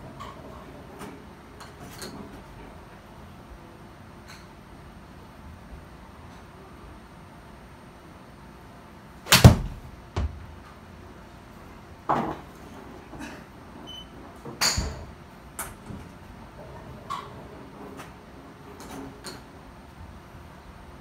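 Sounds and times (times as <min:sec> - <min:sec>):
golf club striking ball: 0:09.3 - 0:09.9.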